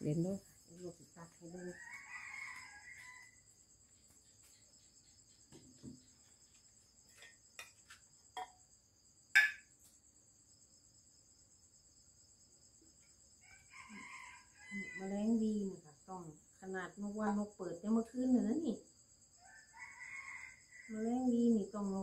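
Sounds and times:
crickets chirring: 0.0 - 22.0
spoon clinking ceramic bowl: 9.4 - 9.7.

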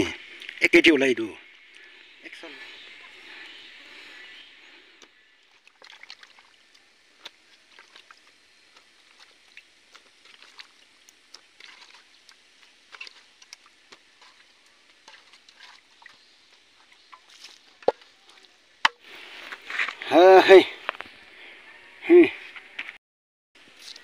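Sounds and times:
wet squelches of raw chicken: 5.0 - 18.8.

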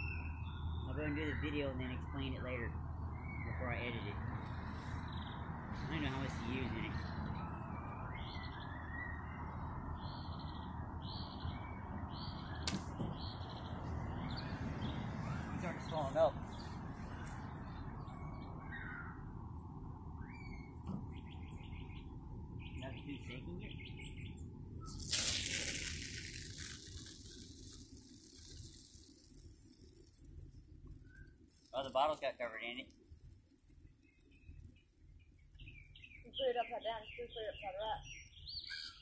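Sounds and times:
sharp click: 12.6 - 13.1
hissing gush of foaming soda: 24.9 - 30.4.

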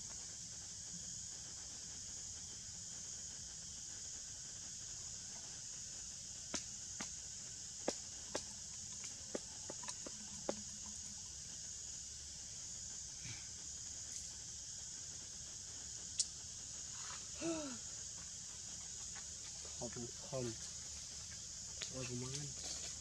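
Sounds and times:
high-pitched insect drone: 0.0 - 23.0.

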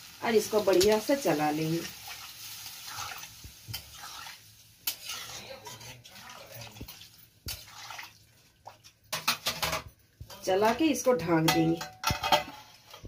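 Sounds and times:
liquid sloshing: 5.8 - 8.9
metal spatula clinking on pan: 11.4 - 12.7.

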